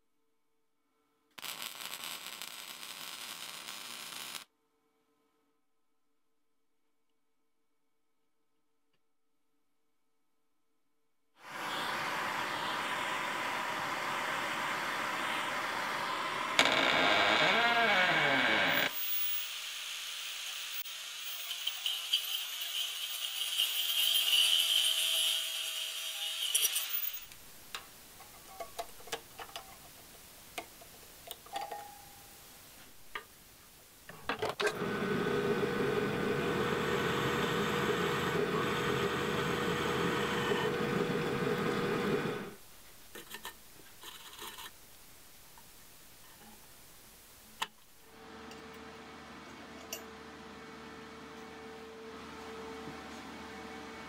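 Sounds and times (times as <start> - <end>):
angle grinder grinding steel: 11.5 - 27.3
drill press drilling steel: 34.7 - 42.6.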